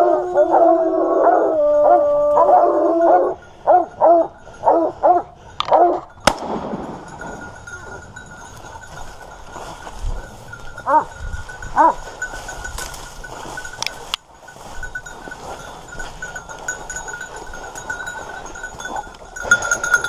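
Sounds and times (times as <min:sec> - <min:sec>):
hounds baying and barking: 0:00.0 - 0:20.0
gunshot: 0:06.3 - 0:07.2.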